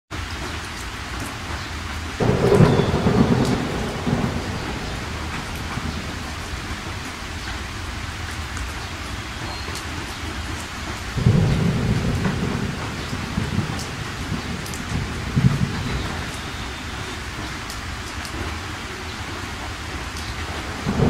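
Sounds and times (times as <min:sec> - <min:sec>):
rain falling: 0:00.1 - 0:21.0
low rumbling: 0:02.2 - 0:07.9.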